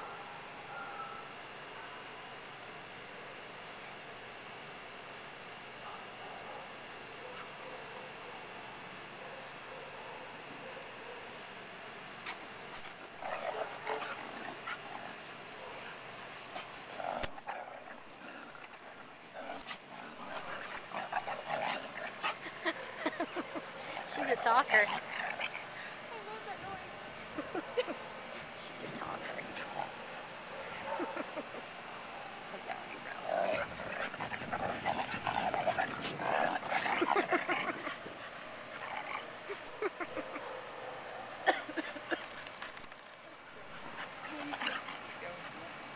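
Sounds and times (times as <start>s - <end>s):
dogs play-growling: 12.1s - 45.9s.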